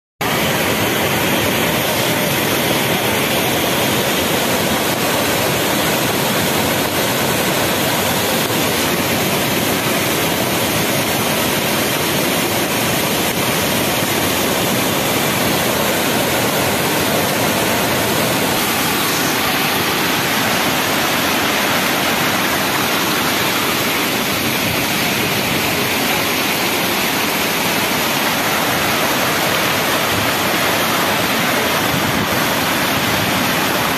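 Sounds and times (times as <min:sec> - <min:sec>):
water rushing over weir: 0:00.2 - 0:33.9.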